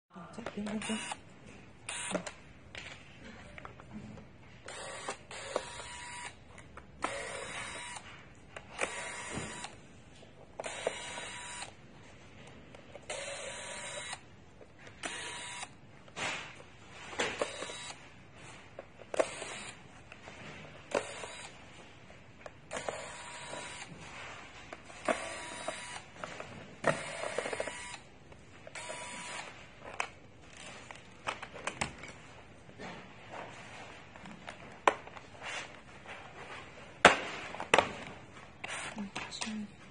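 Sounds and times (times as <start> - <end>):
electric screwdriver whirring: 1.9 - 2.3, 4.7 - 6.4, 7.0 - 8.0, 8.8 - 9.8, 10.6 - 11.7, 13.1 - 14.2, 15.0 - 15.8, 17.4 - 18.0, 19.1 - 19.8, 20.9 - 21.5, 22.7 - 23.9, 25.0 - 26.1, 26.8 - 28.0, 28.7 - 29.5.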